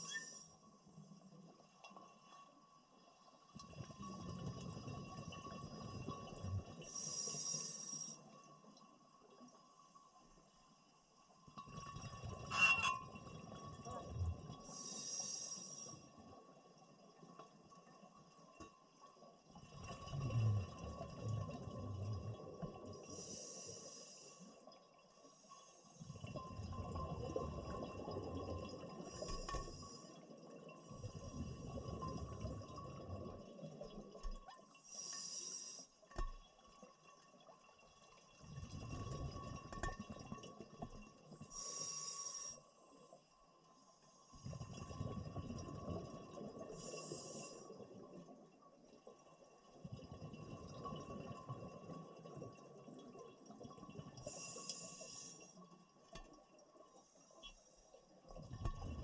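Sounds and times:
exhaled bubbles gurgling: 0:19.5 - 0:24.1, 0:25.9 - 0:35.4, 0:37.3 - 0:42.5, 0:44.3 - 0:55.3, 0:58.2 - 0:59.0.

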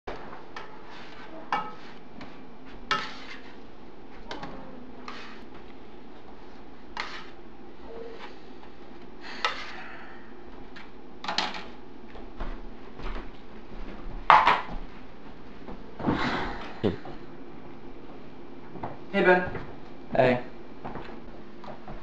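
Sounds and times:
spatula scraping frying pan: 0:02.9 - 0:03.6, 0:05.0 - 0:05.5, 0:06.9 - 0:07.4.

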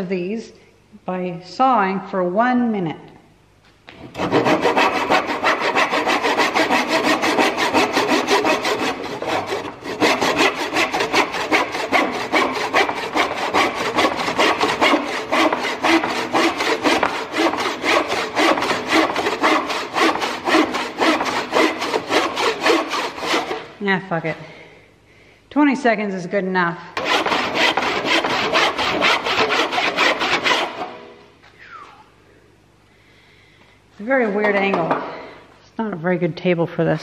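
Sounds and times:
hand saw cutting wood: 0:04.1 - 0:23.7, 0:27.0 - 0:31.1.

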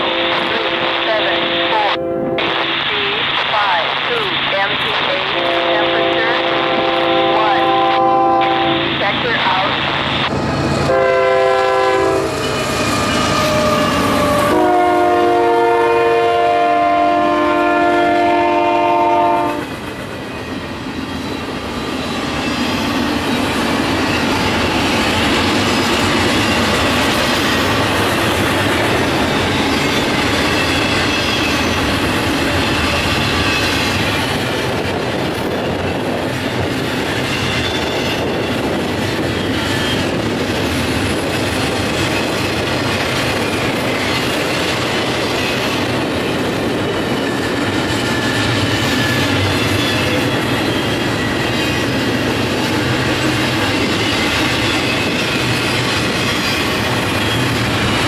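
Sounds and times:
locomotive air horn blasts: 0:00.0 - 0:02.8, 0:05.3 - 0:09.1, 0:10.9 - 0:12.5, 0:13.7 - 0:19.7
train cars rolling on rails: 0:00.0 - 0:58.0.

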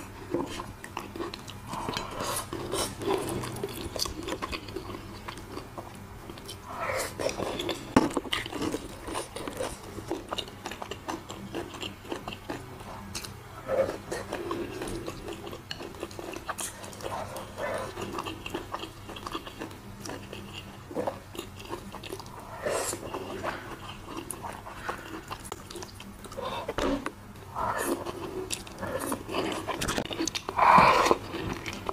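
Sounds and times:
chewing crispy fried food: 0:00.0 - 0:31.9.

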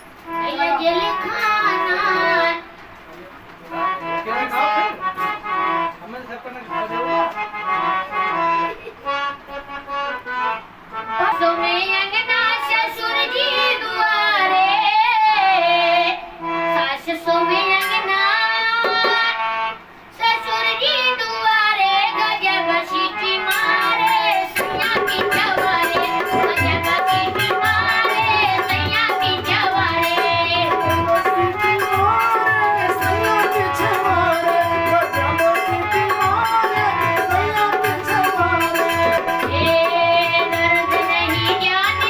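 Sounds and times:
harmonium: 0:00.0 - 0:42.0
boy singing folk song: 0:00.2 - 0:03.0, 0:07.0 - 0:42.0
dholak drum beat: 0:18.8 - 0:19.2, 0:23.4 - 0:42.0.

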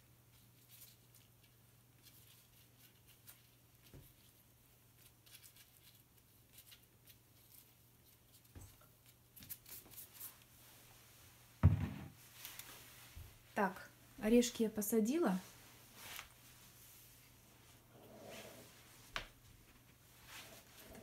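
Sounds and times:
soft knocks: 0:11.6 - 0:12.2.

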